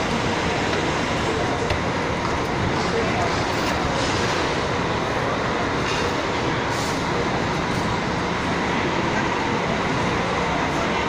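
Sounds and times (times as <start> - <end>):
busy station concourse rumble: 0.0 - 11.0.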